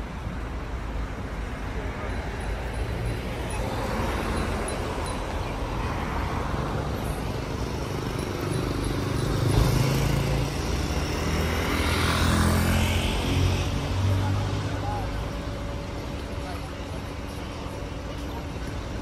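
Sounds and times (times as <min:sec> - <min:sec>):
cars passing: 0:00.0 - 0:19.0
road noise: 0:00.0 - 0:19.0
motorcycle passing: 0:07.4 - 0:14.8.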